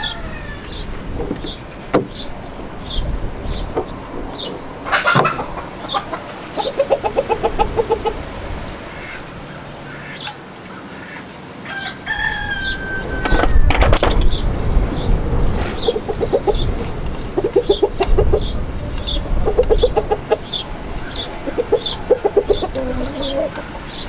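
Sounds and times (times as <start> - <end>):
long held chicken call: 0.0 - 0.8, 11.1 - 13.4
chickens clucking: 0.0 - 24.0.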